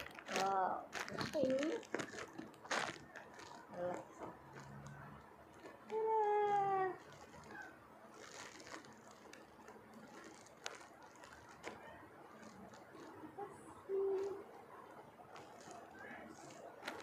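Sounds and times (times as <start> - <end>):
shirt fabric rustling: 0.0 - 13.3.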